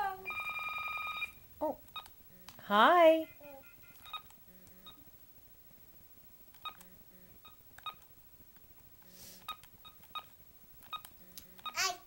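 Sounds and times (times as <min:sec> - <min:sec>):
soft hiss: 0:01.2 - 0:12.0
phone keypad beeps: 0:03.3 - 0:05.0, 0:06.6 - 0:08.0.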